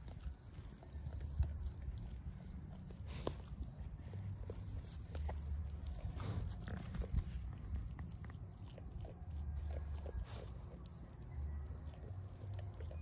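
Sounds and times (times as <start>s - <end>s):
sheep chewing dry hay: 0.0s - 13.0s.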